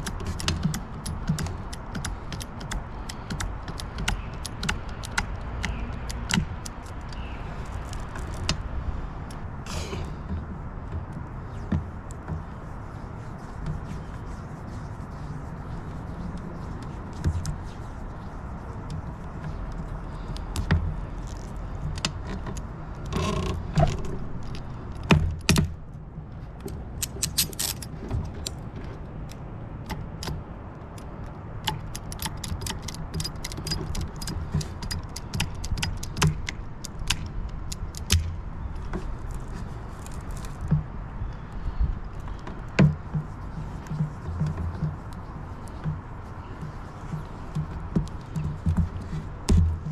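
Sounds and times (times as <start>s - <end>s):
ratcheting cable cutter clicks: 0.0s - 7.2s, 31.0s - 38.3s
handling noise: 42.1s - 49.9s.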